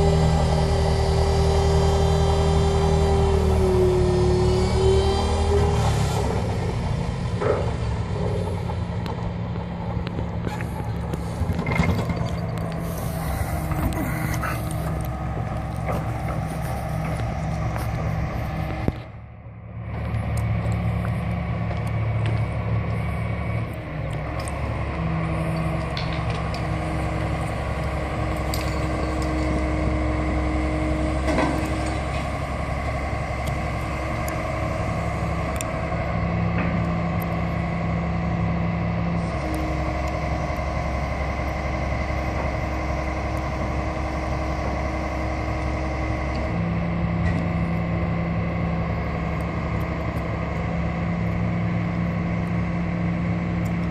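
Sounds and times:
hydraulic whine: 0.0 - 8.8, 10.4 - 19.2
excavator diesel engines: 0.0 - 53.9.

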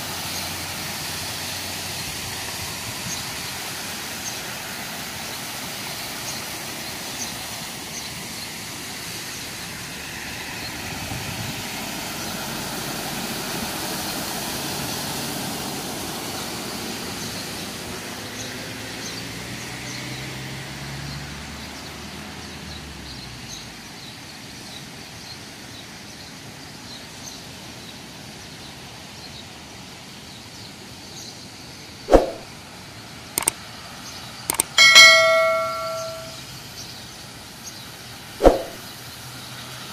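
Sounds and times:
car tyres splashing through water: 0.0 - 22.9
sharp clicks: 34.5 - 36.4
short chime: 34.5 - 36.4.

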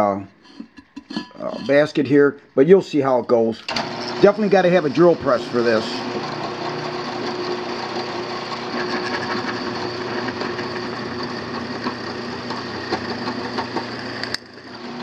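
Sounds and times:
drill press cutting metal: 3.6 - 15.0.

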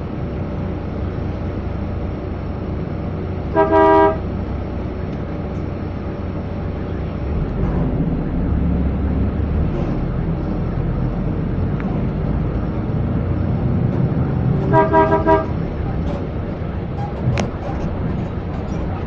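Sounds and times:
bus engine rumbling: 0.0 - 19.0
vehicle horn: 3.5 - 4.3, 14.6 - 15.6.

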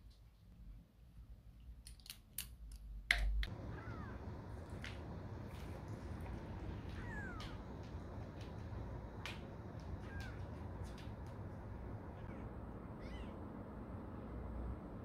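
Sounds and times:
steady low hum: 3.0 - 15.0
kitten mewing: 3.7 - 4.2, 6.9 - 7.6, 9.9 - 11.0, 12.2 - 13.4.

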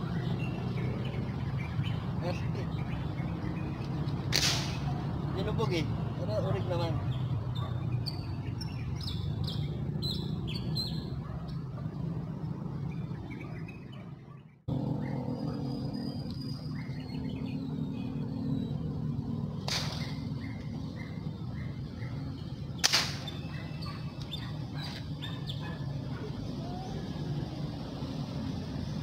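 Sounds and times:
small birds chirping: 0.0 - 29.0
air rifle shot: 4.3 - 4.9, 19.6 - 20.2, 22.8 - 23.3.

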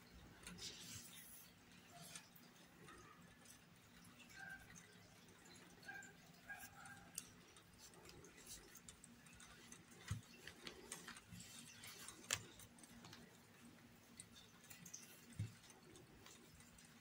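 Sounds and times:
yarn rustling: 6.5 - 17.0.

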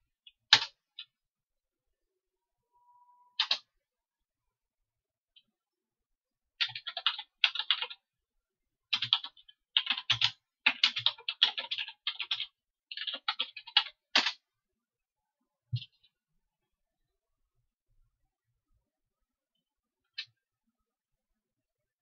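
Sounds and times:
computer keyboard clicking: 6.6 - 8.0, 8.9 - 14.4.

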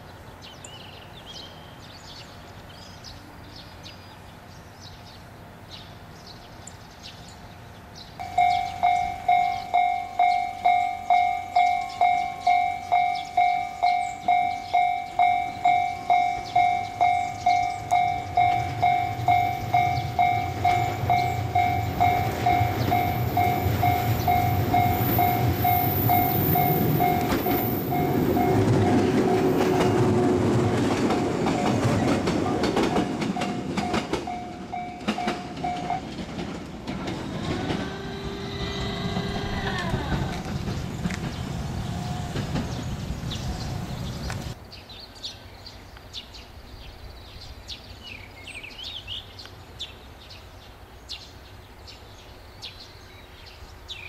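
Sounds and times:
train rumble and wheel clatter: 0.0 - 44.6
level-crossing alarm ringing: 8.2 - 36.2.

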